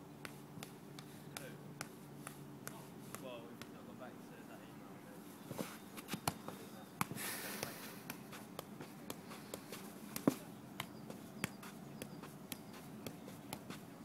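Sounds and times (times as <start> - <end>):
foot kicking football thumps: 5.5 - 14.0.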